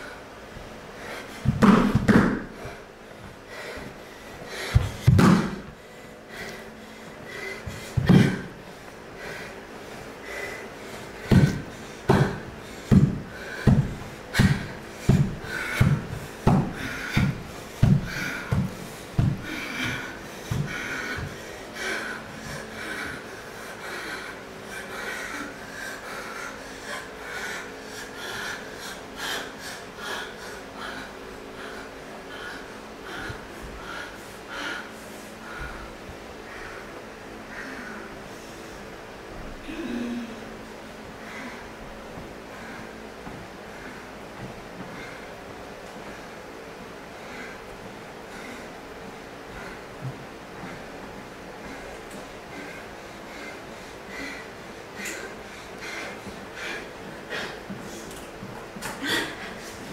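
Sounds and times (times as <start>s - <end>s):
heavy rhythmic breathing: 0.0s - 59.9s
rhythmic thuds: 11.2s - 23.0s.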